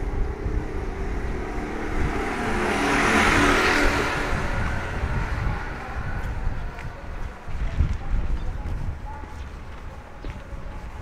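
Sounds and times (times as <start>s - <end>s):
vehicle passing by: 0.0s - 6.8s.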